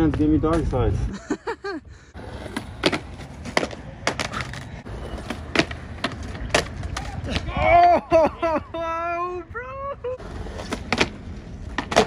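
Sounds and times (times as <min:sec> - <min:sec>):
skateboard wheels rolling on concrete: 0:00.0 - 0:01.2, 0:02.1 - 0:12.0
skateboard clacks: 0:02.4 - 0:07.5, 0:10.2 - 0:12.0.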